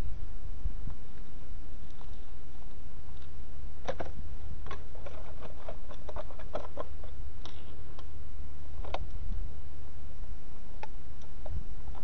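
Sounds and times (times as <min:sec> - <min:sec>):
steady low hum: 0:00.0 - 0:12.0
small parts clicking and knocking: 0:03.1 - 0:08.1.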